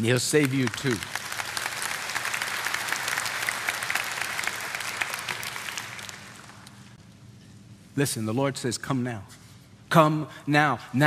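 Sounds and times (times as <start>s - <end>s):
crowd applauding: 0.0s - 7.0s.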